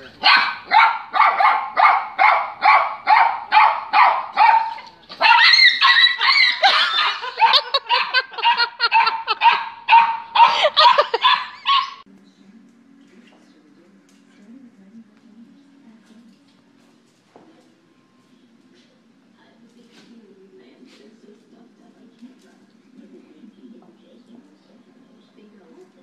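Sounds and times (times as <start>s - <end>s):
small dog yapping: 0.2s - 12.0s.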